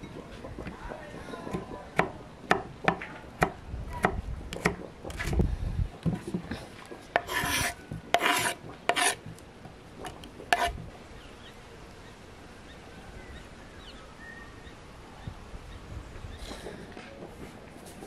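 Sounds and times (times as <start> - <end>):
herbs being scraped: 7.2 - 9.2, 10.0 - 10.8.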